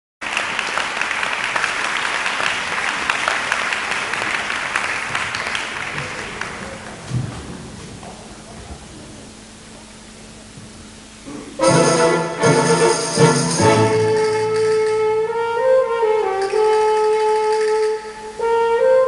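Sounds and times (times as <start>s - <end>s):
audience applauding: 0.2s - 8.5s.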